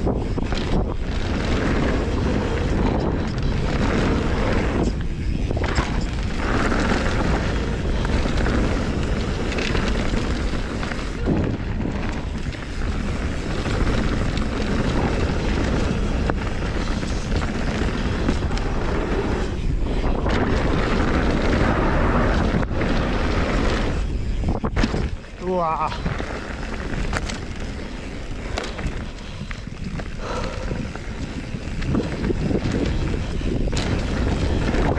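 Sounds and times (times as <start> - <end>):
bike rattling: 0.0 - 34.9
bike tyres rolling over gravel: 0.0 - 34.9
wind buffeting microphone: 0.0 - 34.9.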